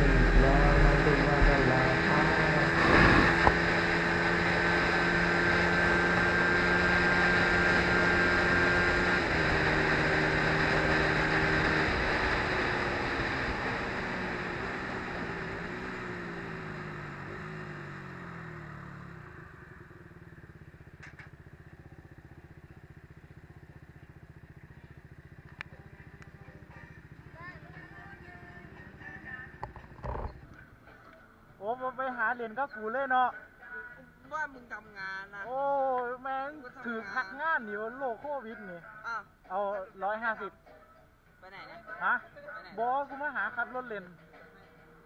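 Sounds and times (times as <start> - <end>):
wind rush: 0.0 - 3.8
motorcycle engine running: 0.0 - 31.0.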